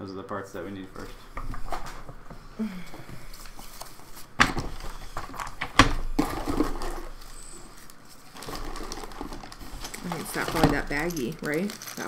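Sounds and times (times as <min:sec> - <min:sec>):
rustling and clatter of parts: 0:00.8 - 0:12.0.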